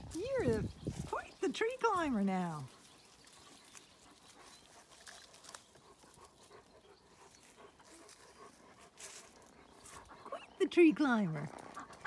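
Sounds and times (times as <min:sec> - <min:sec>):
dog panting: 0:02.7 - 0:12.0.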